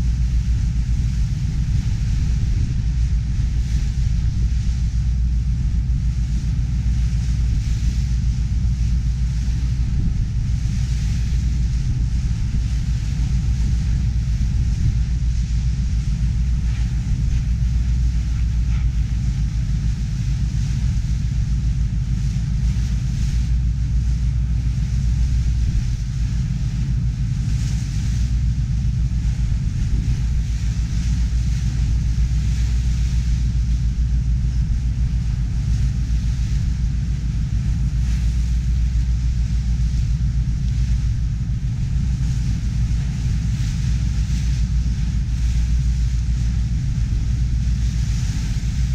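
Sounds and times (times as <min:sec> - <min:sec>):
boat engine droning: 0:00.0 - 0:48.9
wind and water rushing: 0:00.0 - 0:48.9.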